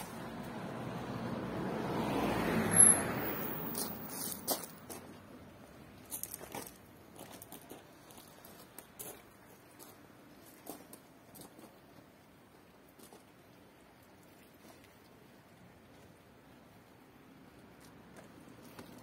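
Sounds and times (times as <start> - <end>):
car passing: 0.0 - 5.7.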